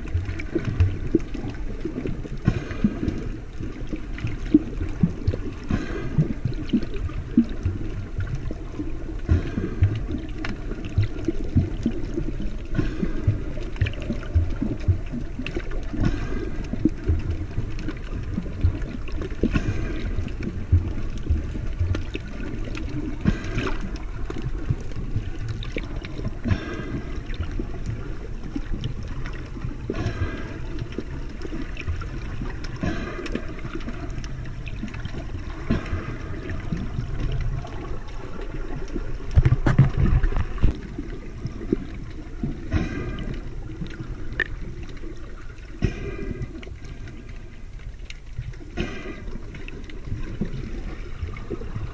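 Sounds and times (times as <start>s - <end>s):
underwater sloshing rumble: 0.0s - 51.9s
water swish: 0.0s - 51.9s
small underwater knocks: 38.8s - 44.9s.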